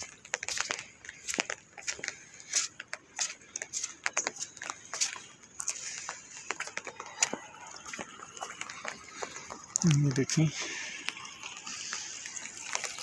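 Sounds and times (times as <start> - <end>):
raindrops tapping on umbrella: 0.0 - 13.0
light rain hiss: 5.7 - 13.0.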